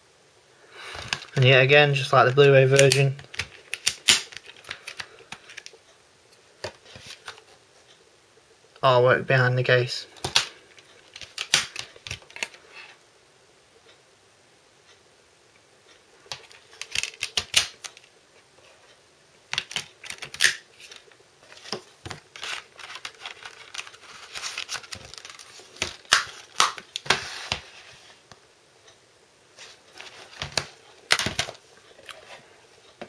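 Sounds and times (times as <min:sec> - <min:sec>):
paper insert rustling: 0:20.1 - 0:28.2
plastic cases clicking and clacking: 0:21.7 - 0:27.2, 0:30.0 - 0:31.6.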